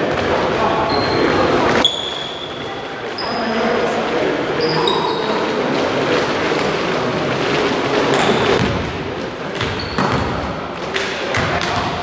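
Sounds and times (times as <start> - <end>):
echoing hall din: 0.0 - 12.0
shoe squeak: 0.8 - 3.6, 4.6 - 5.6, 8.2 - 8.6, 9.6 - 10.3
volleyball hits and thuds: 8.2 - 8.9, 9.5 - 10.5.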